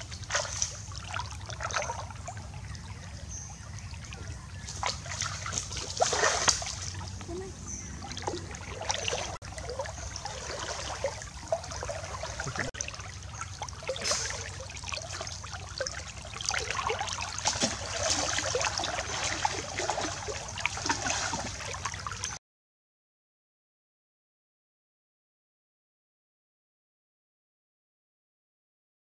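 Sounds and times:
water splashing and trickling: 0.0 - 22.4.

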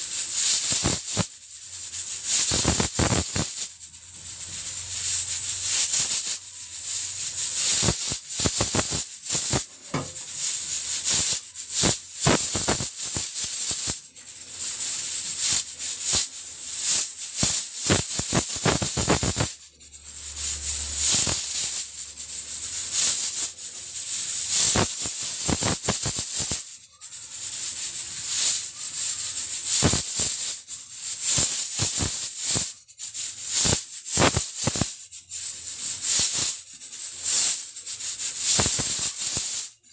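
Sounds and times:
steam hissing from pressure cooker: 0.0 - 39.9
pressure cooker valve rattling: 0.2 - 19.6, 20.3 - 26.7, 38.2 - 39.6.

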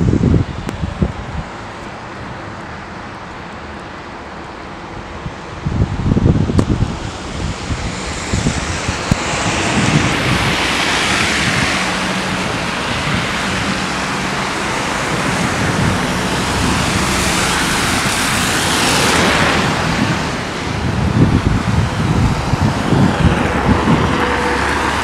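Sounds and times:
wind buffeting microphone: 0.0 - 25.0
truck passing: 6.2 - 25.0.

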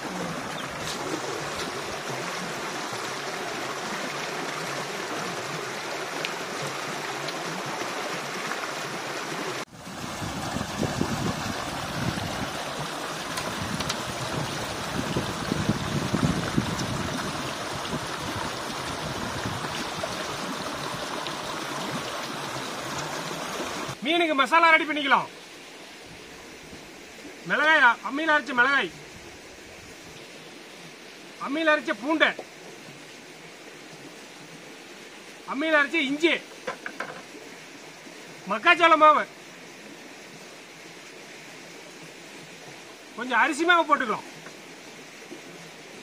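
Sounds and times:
stream water flowing: 0.0 - 46.0.

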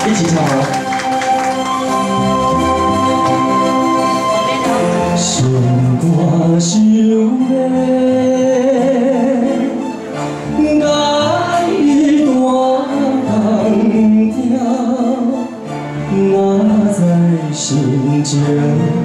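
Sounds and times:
instrumental accompaniment: 0.0 - 19.0
man singing into microphone: 5.0 - 15.5, 16.1 - 19.0.

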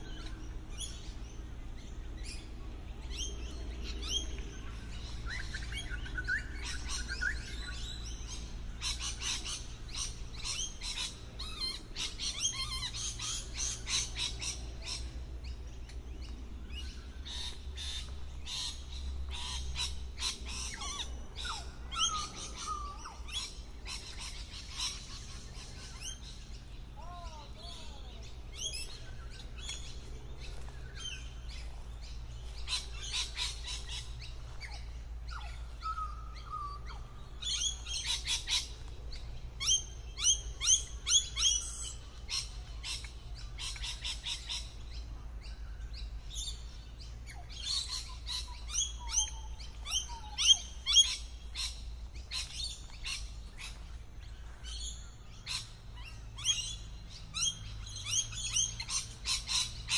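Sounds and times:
lorikeets chirping: 0.0 - 59.9.

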